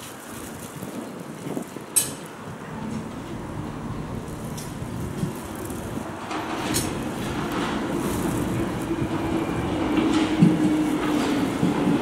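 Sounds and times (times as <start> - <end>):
wheels clicking over track: 1.2 - 12.0
subway train approaching: 2.0 - 12.0
steady hum: 2.6 - 10.1.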